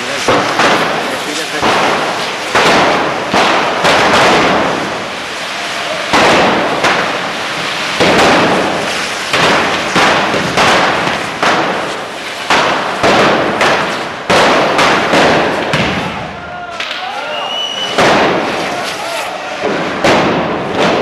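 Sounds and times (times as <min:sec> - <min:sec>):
hiss of burning rockets: 0:00.0 - 0:21.0
rocket bangs echoing: 0:00.0 - 0:21.0.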